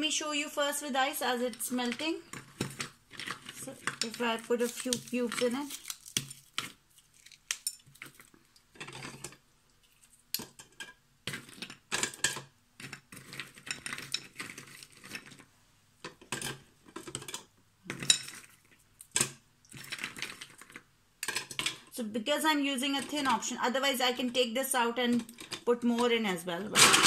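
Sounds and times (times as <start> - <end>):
ice cubes rattling in plastic chute: 26.7 - 27.0.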